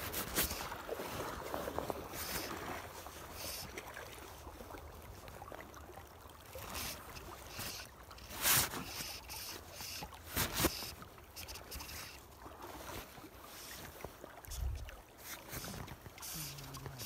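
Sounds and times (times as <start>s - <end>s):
water around a boat: 0.0s - 17.0s
wind: 0.0s - 17.0s
fly line rustling: 6.6s - 12.2s.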